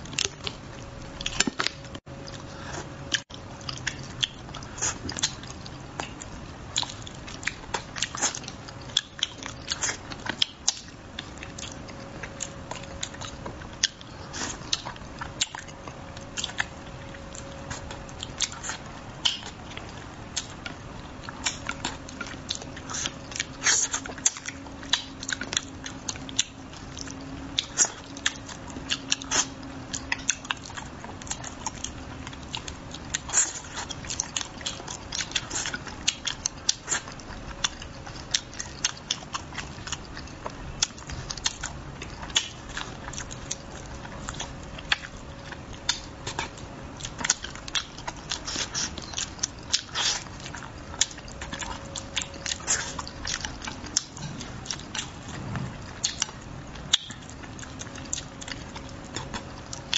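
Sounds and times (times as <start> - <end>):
wet chewing: 0.0 - 59.9
lip smacks: 32.6 - 59.9.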